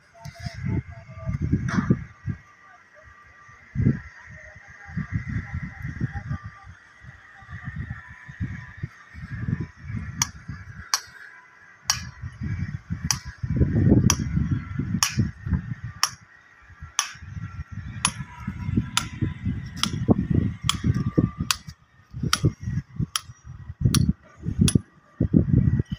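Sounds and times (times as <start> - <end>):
low gusty rumble: 11.9 - 16.2, 16.8 - 25.9.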